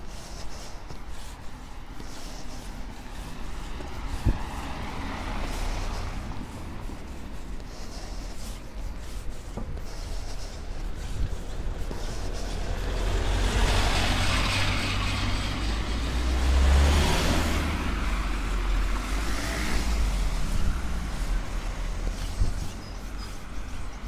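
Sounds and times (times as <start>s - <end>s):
steady low traffic rumble: 0.0s - 24.0s
vehicle swishing past: 1.6s - 8.6s, 12.0s - 23.1s
louder vehicle approaching: 12.0s - 22.5s.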